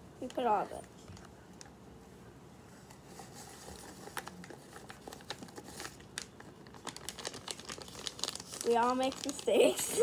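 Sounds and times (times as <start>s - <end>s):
paper packet crinkling: 3.3s - 10.0s.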